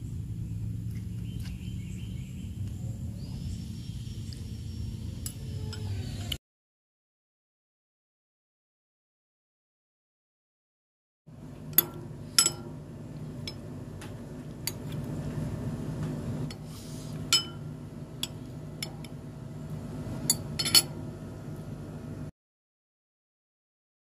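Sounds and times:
low background hum: 0.0 - 6.4, 11.3 - 22.3
spoon clinking against glass bowl: 17.3 - 19.2.

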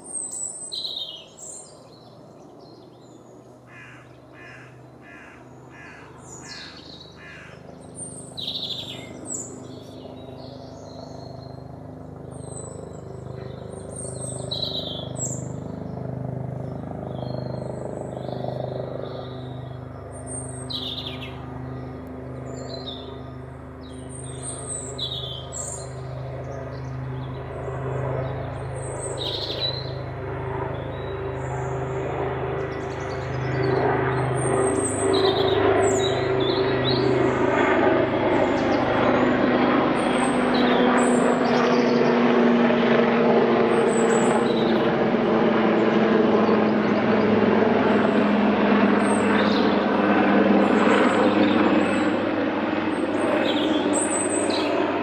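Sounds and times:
helicopter drone: 0.0 - 55.0
robin singing: 0.1 - 27.5.

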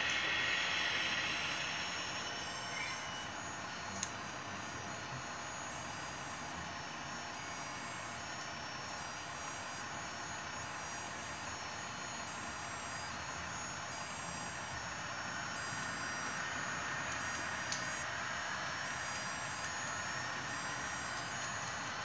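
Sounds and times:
model trains rolling hiss: 0.0 - 4.5, 13.2 - 22.0.

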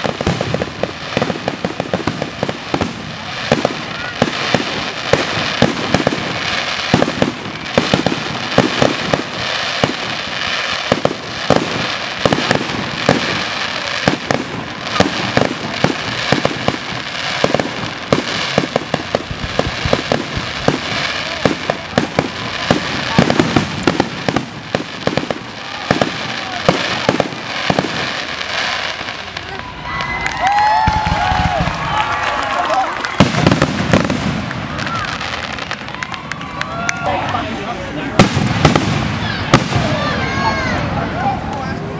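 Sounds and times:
fireworks hiss: 0.0 - 29.6
fireworks bangs: 0.0 - 41.9.

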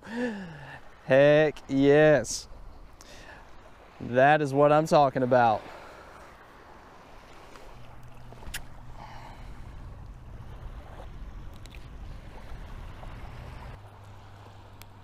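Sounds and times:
distant motorboat engine droning: 5.6 - 15.0.

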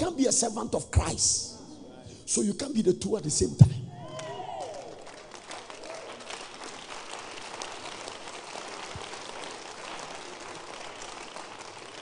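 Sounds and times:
congregation clapping: 4.1 - 12.0.

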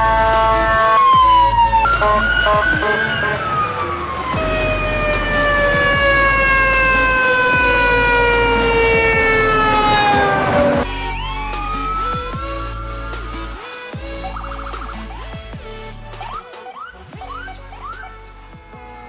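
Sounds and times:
emergency vehicle horn blast: 0.0 - 11.1, 16.2 - 19.0
fire engine siren winding down: 0.0 - 15.4, 16.1 - 19.0
choppy siren: 0.0 - 19.0.

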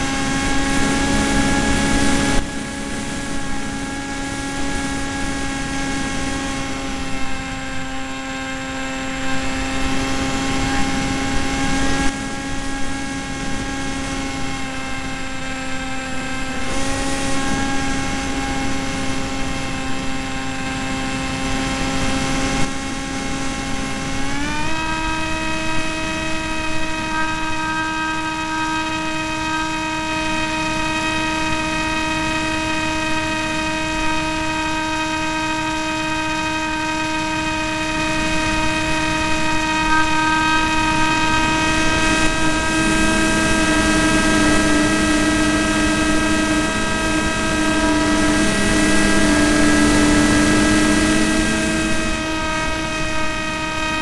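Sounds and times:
model plane motor whining: 0.0 - 54.0
low warbling tone: 22.5 - 54.0
rushing noise: 37.3 - 54.0.

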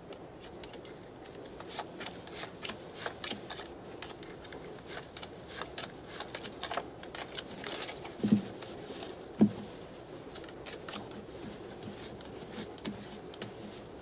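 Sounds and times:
playing cards shuffling: 0.4 - 9.2.

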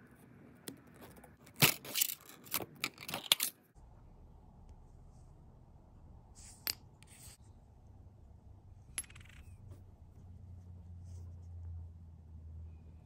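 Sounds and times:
metal parts clicking: 1.5 - 3.6.

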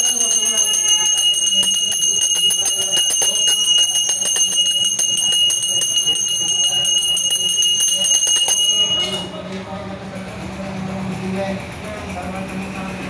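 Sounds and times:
hand bell ringing: 0.0 - 9.4.

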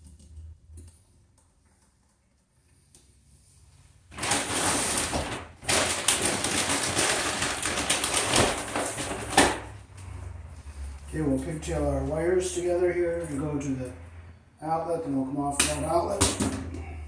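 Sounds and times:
bag rustling and crinkling: 4.1 - 9.7.

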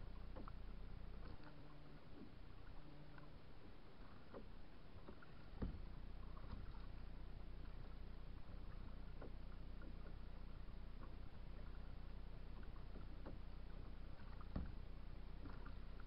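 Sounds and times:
low steady rumble: 0.0 - 16.0
paddle splashes and drips: 0.0 - 16.0.

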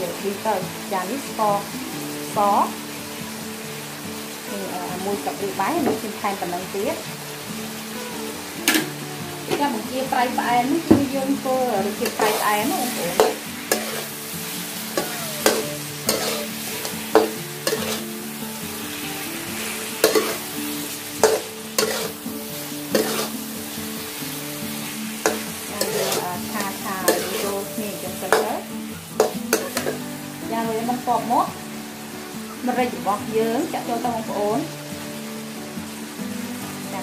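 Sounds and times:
shrimp sizzling in sauce: 0.0 - 37.0
metal spatula scraping wok: 11.8 - 18.4, 19.6 - 30.0
spatula clanking against wok: 12.0 - 14.1, 14.9 - 18.0, 20.0 - 20.4, 21.2 - 22.2, 22.9 - 23.3, 25.2 - 27.6, 28.2 - 28.6, 29.2 - 30.0.

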